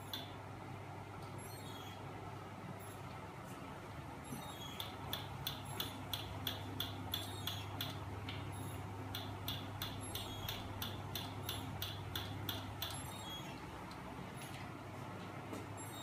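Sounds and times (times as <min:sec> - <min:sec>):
sharp mechanical clicks: 0:00.0 - 0:00.4, 0:04.6 - 0:14.0.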